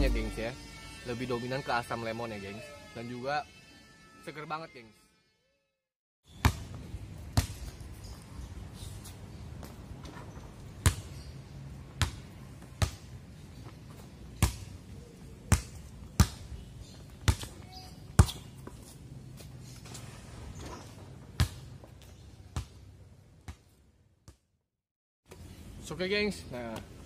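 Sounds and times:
basketball bouncing on pavement: 0:10.7 - 0:14.8, 0:15.5 - 0:20.0, 0:21.2 - 0:24.4.

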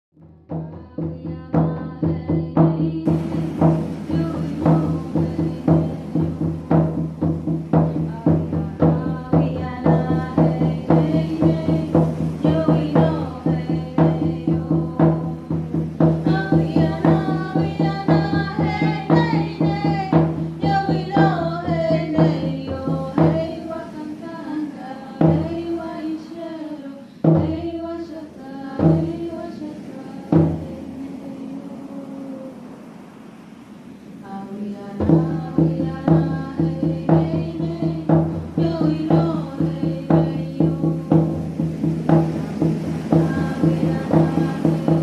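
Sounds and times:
frame drums beating: 0:00.2 - 0:23.7, 0:25.2 - 0:25.8, 0:27.2 - 0:27.7, 0:28.8 - 0:29.3, 0:35.0 - 0:45.0
women singing: 0:00.5 - 0:32.7, 0:34.2 - 0:45.0.

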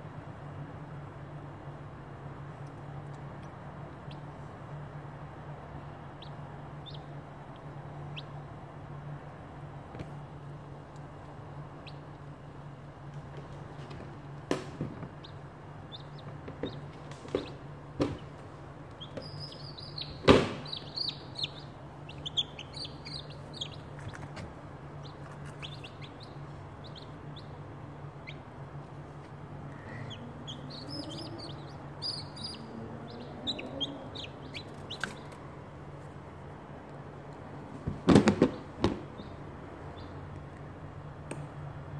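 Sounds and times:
steady low hum: 0:00.0 - 0:41.9
chicks peeping: 0:04.0 - 0:04.4, 0:05.9 - 0:08.5, 0:11.8 - 0:12.4, 0:15.0 - 0:36.1, 0:38.4 - 0:40.5
sharp knocks: 0:20.2 - 0:20.9.

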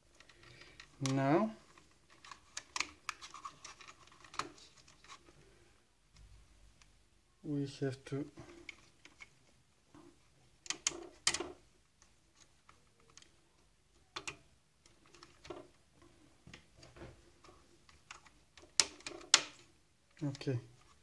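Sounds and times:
plastic and metal parts clicking: 0:00.1 - 0:05.3, 0:10.6 - 0:11.6, 0:14.2 - 0:15.8, 0:16.5 - 0:21.0.

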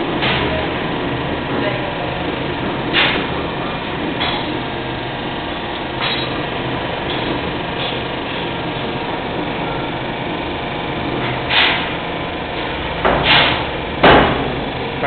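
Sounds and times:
spring coiling machine running: 0:00.0 - 0:15.0.

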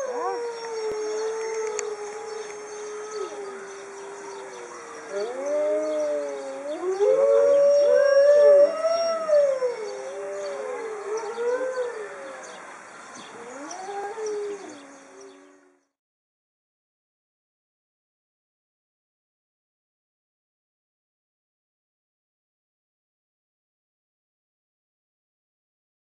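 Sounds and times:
wolves howling in chorus: 0:00.0 - 0:12.6, 0:13.2 - 0:15.8.

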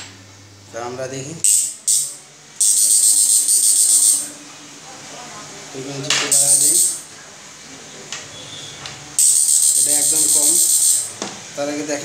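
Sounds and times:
high-pitched hissing buzz: 0:01.4 - 0:04.4, 0:06.3 - 0:07.1, 0:09.2 - 0:11.2.

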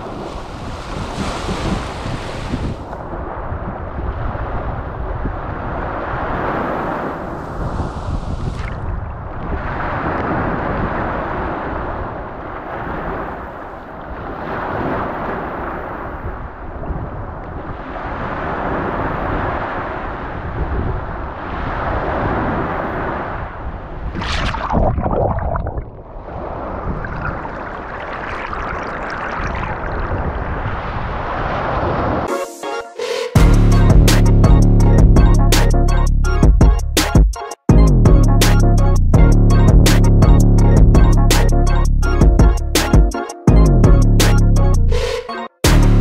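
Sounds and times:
small surf washing on sand: 0:00.0 - 0:03.1, 0:05.8 - 0:08.8
sharp water splash: 0:24.0 - 0:30.8.

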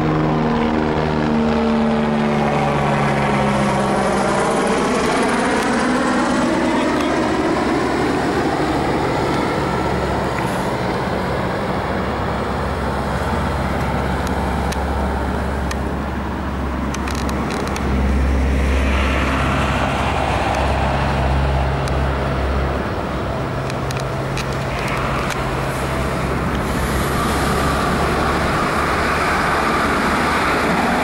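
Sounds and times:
electric train running: 0:22.8 - 0:31.0.

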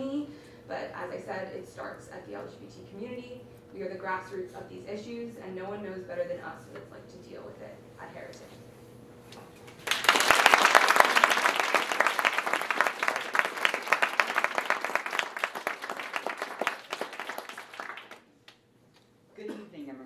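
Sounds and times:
audience applauding: 0:09.8 - 0:18.3.

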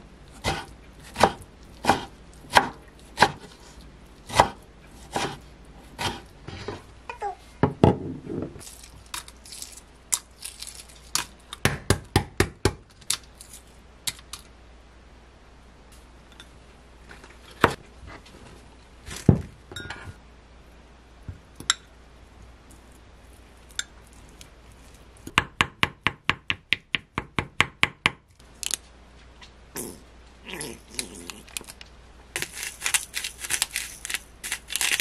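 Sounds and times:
eggs being peeled: 0:30.5 - 0:35.0.

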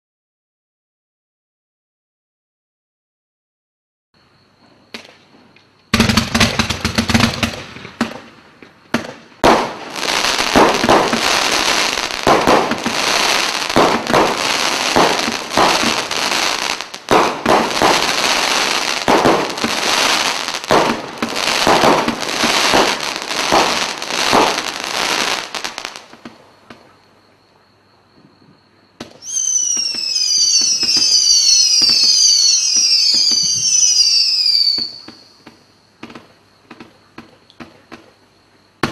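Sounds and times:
firework shots and crackling: 0:05.9 - 0:26.8, 0:29.0 - 0:37.0
firework whistles falling in pitch: 0:09.4 - 0:26.0, 0:29.0 - 0:35.6.

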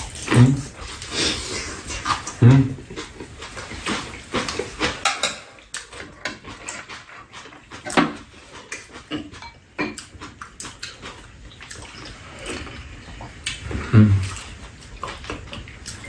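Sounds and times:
noodles slurped and chewed: 0:00.0 - 0:16.0
chopsticks and spoons clicking on bowls: 0:03.8 - 0:10.3.

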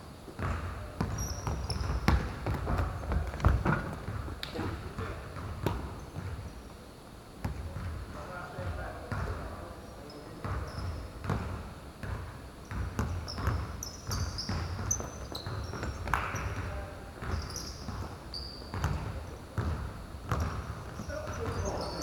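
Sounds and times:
shoes squeaking on court: 0:00.3 - 0:06.7, 0:10.0 - 0:22.0
basketball bouncing: 0:00.4 - 0:04.2, 0:10.4 - 0:21.8.

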